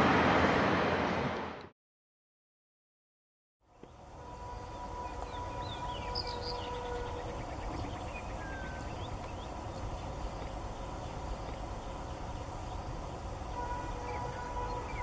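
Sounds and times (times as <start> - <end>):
steady low rumble: 3.8 - 15.0
small birds chirping: 4.6 - 13.1.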